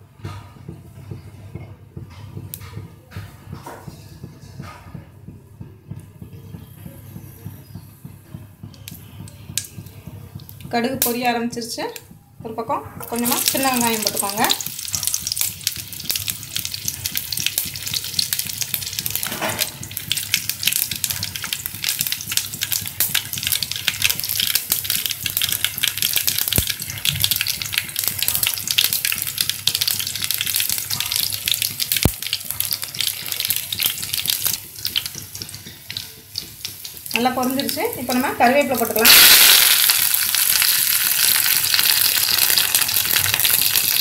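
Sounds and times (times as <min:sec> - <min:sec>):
mustard seeds popping: 0:08.7 - 0:11.3, 0:13.0 - 0:44.0
seeds sizzling in hot oil: 0:13.0 - 0:44.0.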